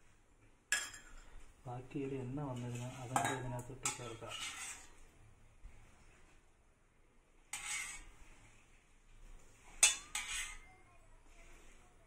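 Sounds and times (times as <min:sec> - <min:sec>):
steel ladle scraping a pan: 0:02.3 - 0:05.2, 0:07.4 - 0:08.8, 0:09.4 - 0:12.0.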